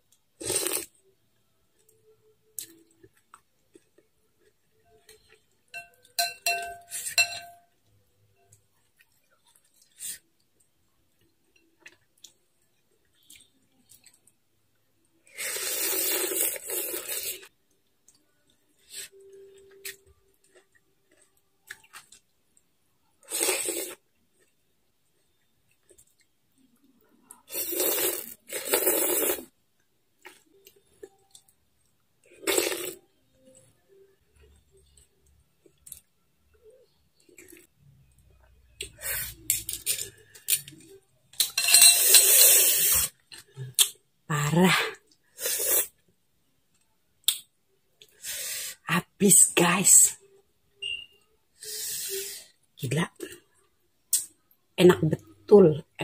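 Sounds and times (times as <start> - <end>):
spoon and chopsticks clinking bowl: 5.1 - 7.7, 41.4 - 42.4
noodles being slurped: 15.3 - 17.5, 27.5 - 29.5.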